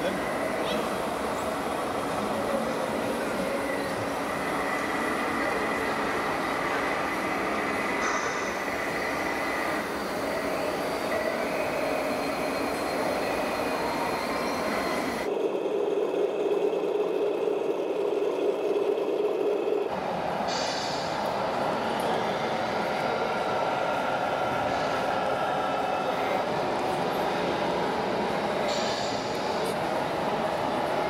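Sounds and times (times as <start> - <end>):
electric motors whining: 0.0 - 19.9
mechanical running noise: 0.0 - 23.2
steady hum: 0.0 - 31.0.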